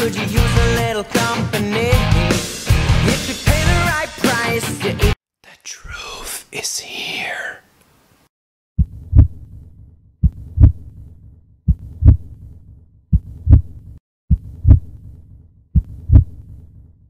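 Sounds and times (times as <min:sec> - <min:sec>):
heartbeat double thumps: 0:08.8 - 0:09.6, 0:10.2 - 0:15.1, 0:15.7 - 0:16.6.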